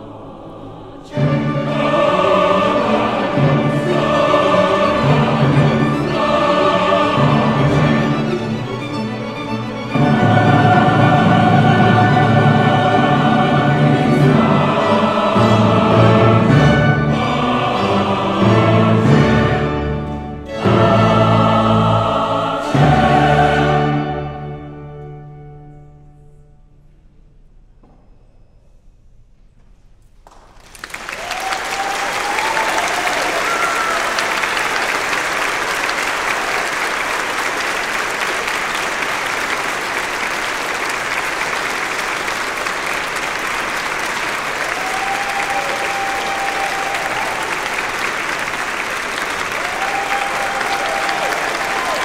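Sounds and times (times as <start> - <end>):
audience applause: 30.3 - 52.0.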